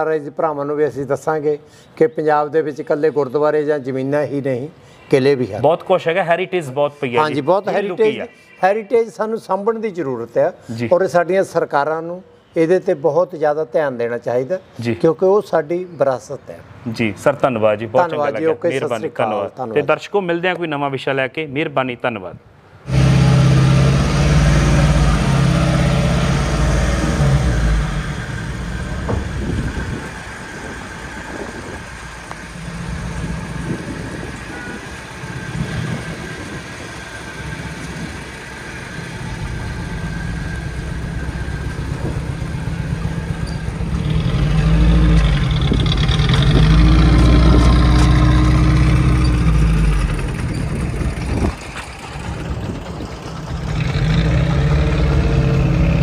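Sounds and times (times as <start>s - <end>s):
car engine idling: 25.2s - 54.4s.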